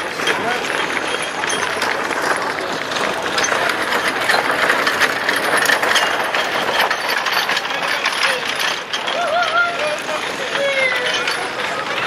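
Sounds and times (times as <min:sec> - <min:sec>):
gun carriage wheels rattling: 0:00.0 - 0:12.0.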